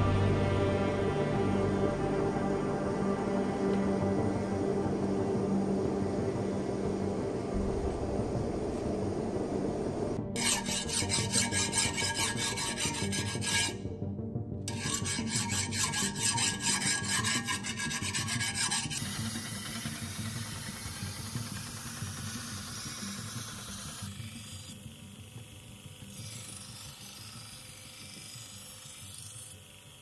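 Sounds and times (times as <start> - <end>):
belt grinder whirring: 10.4 - 13.8, 14.7 - 30.0
hand file rasping on steel: 10.4 - 13.9, 14.7 - 19.8.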